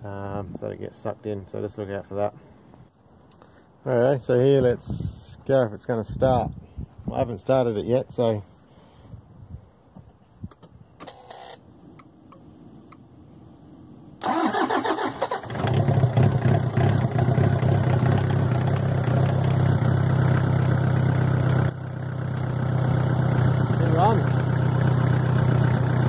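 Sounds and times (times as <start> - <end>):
diesel engine cranking and idling: 14.2 - 26.0.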